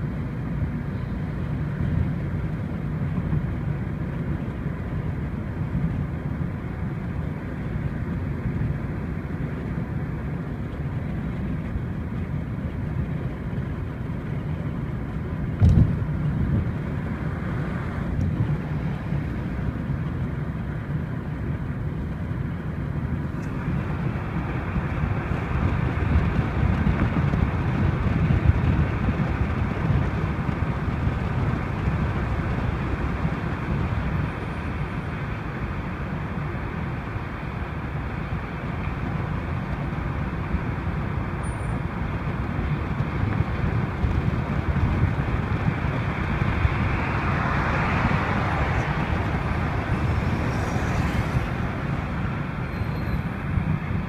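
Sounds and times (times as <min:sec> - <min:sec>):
engine and tyre rumble: 0:00.0 - 0:54.0
passing traffic hiss: 0:45.4 - 0:54.0.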